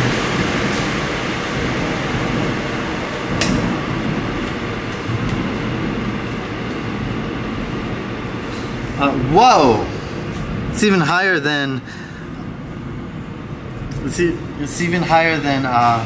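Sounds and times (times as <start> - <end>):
subway platform rumble and hiss: 0.0 - 16.0.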